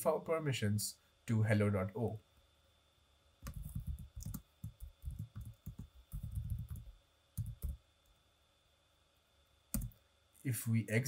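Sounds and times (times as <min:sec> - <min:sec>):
computer keyboard typing: 0:03.4 - 0:07.8, 0:09.7 - 0:10.0.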